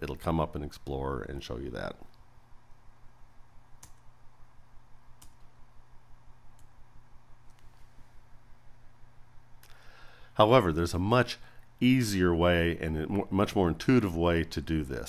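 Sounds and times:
faint low hum: 0.0 - 15.0
computer mouse clicks: 3.8 - 4.1, 5.2 - 5.5.

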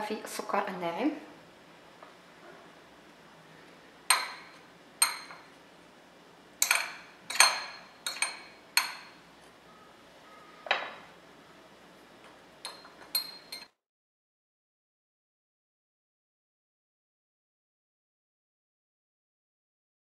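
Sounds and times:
fork clinking against glass bowls: 4.1 - 5.5, 6.6 - 9.2, 12.6 - 13.7.

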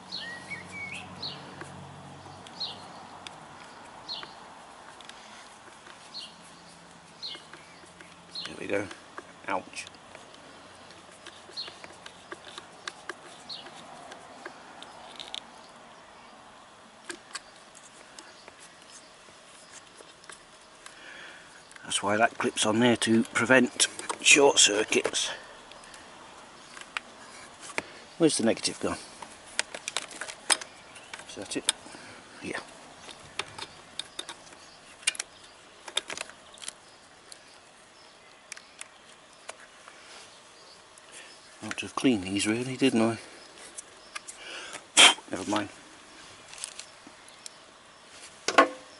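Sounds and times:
small metallic clicks and taps: 6.9 - 15.5, 29.2 - 31.9, 33.0 - 37.4
screwdriver metallic clicks and scrapes: 10.9 - 15.5.

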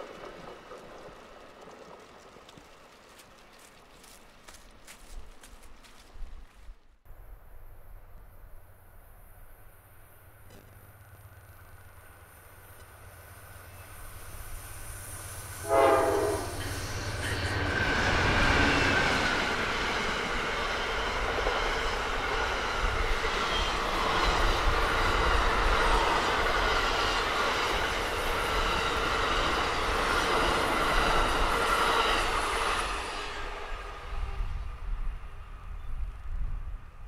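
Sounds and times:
diesel locomotives passing: 0.0 - 4.9, 7.1 - 37.0
train wheels rumbling on rails: 0.0 - 6.2, 7.2 - 37.0
train horn blast: 15.6 - 17.7.

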